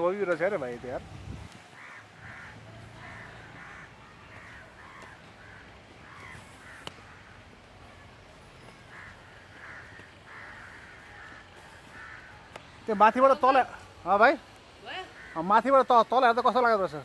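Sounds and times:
crows cawing: 0:01.8 - 0:07.6, 0:08.7 - 0:12.5, 0:14.8 - 0:16.1.

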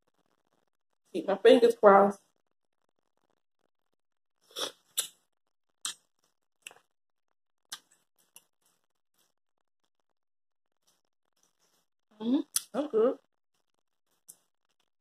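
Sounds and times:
wet mouth smacks from chewing: 0:07.7 - 0:08.5.

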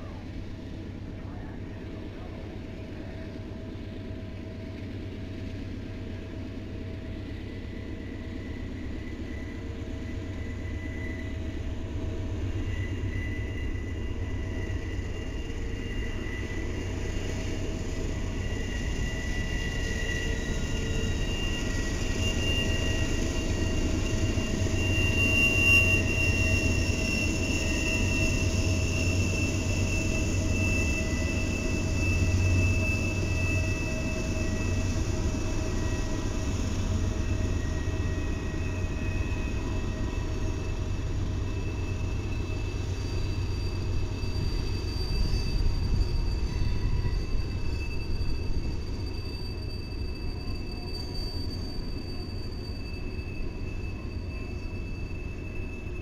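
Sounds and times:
trains rumbling past: 0:00.0 - 0:56.0
high-pitched wheel squeal: 0:12.5 - 0:56.0.

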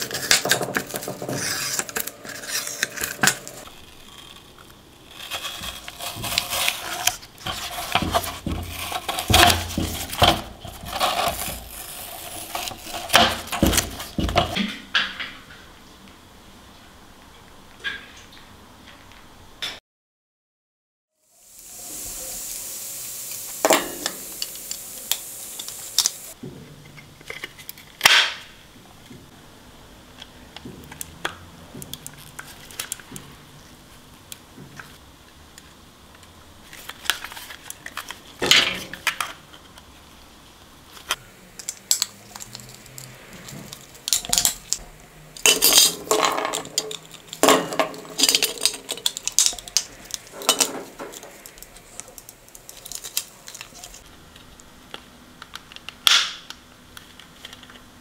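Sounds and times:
steady hiss: 0:21.2 - 0:26.4.

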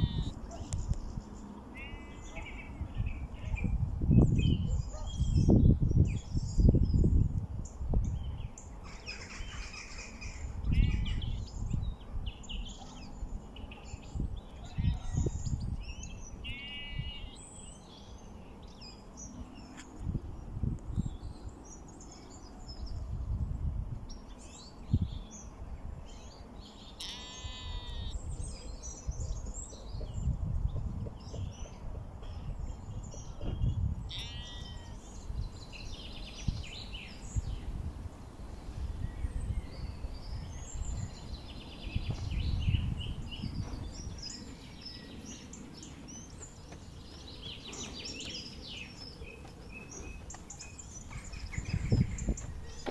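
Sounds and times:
sheep bleating: 0:00.0 - 0:00.4, 0:16.5 - 0:17.3, 0:27.0 - 0:28.2, 0:34.1 - 0:35.0
small birds chirping: 0:00.0 - 0:52.9
wind rumble on microphone: 0:00.0 - 0:52.9.

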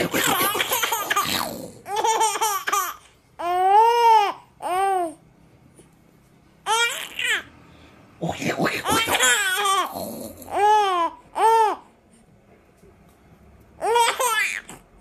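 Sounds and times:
baby laughing and cooing: 0:00.0 - 0:05.1, 0:06.7 - 0:07.5, 0:08.5 - 0:11.8, 0:13.8 - 0:14.9.

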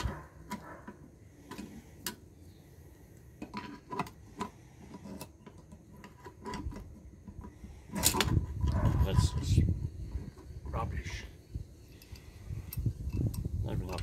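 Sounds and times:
metal tool clicks and clinks: 0:11.9 - 0:14.0.

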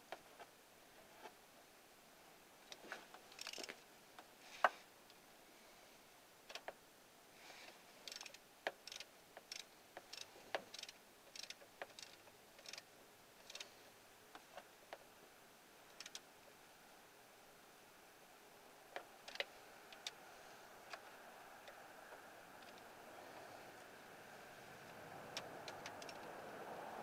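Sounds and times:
ratchet wrench clicking: 0:03.3 - 0:03.7, 0:08.0 - 0:12.8, 0:13.4 - 0:13.6, 0:15.9 - 0:16.2, 0:19.2 - 0:20.2, 0:25.4 - 0:26.3.

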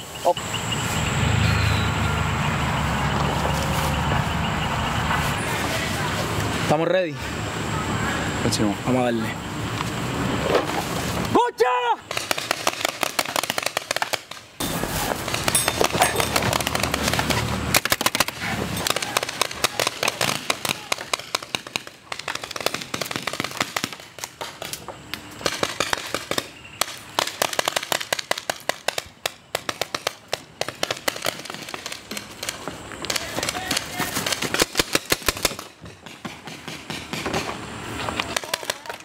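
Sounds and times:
paintball markers firing: 0:12.1 - 0:14.5, 0:15.2 - 0:37.6, 0:38.2 - 0:39.0.

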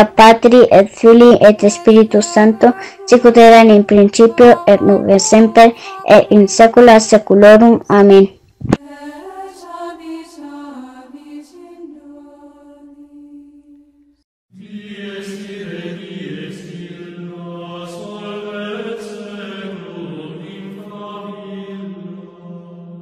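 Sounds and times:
chanted vocal music: 0:00.0 - 0:07.2, 0:08.8 - 0:13.9, 0:14.5 - 0:23.0
steady low held voice: 0:01.5 - 0:06.6.

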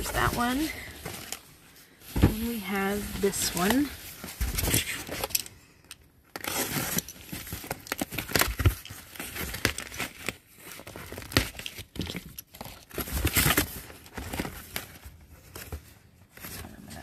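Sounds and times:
cardboard scraping and rustling: 0:00.0 - 0:05.3
tape tearing: 0:06.3 - 0:14.8.

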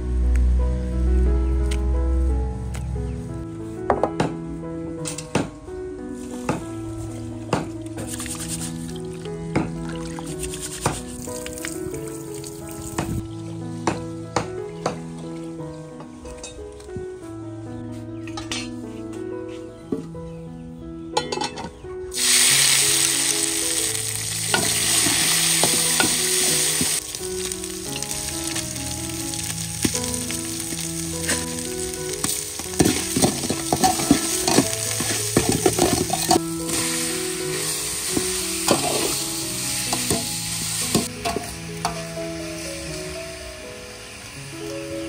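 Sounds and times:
spice paste sizzling in oil: 0:22.1 - 0:45.0
metal spoon scraping pot: 0:32.8 - 0:36.4.

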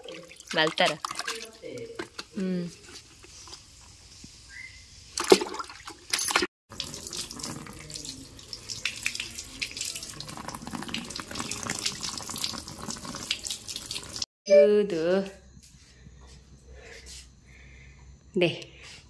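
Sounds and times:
sharp splashes: 0:05.2 - 0:06.1.

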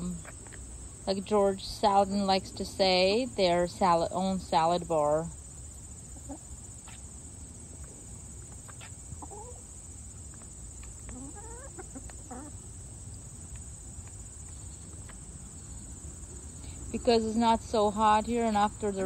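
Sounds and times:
high drone of insects: 0:00.0 - 0:19.0
hens clucking softly: 0:06.1 - 0:07.0, 0:07.8 - 0:12.8.

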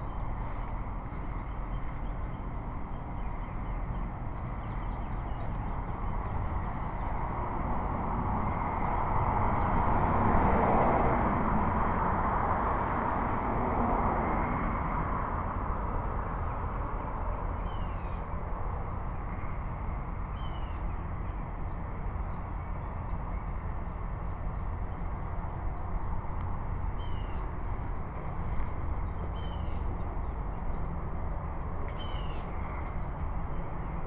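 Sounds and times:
steady rushing noise: 0:00.0 - 0:17.6.

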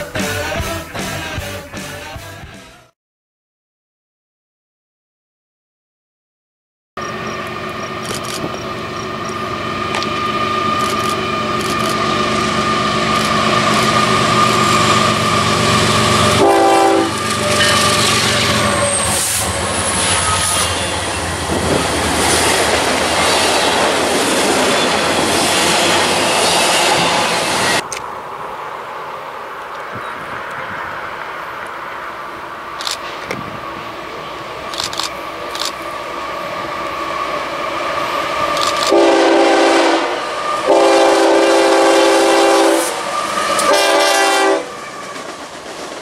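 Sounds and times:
diesel locomotive engines: 0:00.0 - 0:02.6, 0:07.0 - 0:46.0
freight train rolling past: 0:07.0 - 0:46.0
locomotive horn blast: 0:12.6 - 0:22.0, 0:38.8 - 0:45.2.

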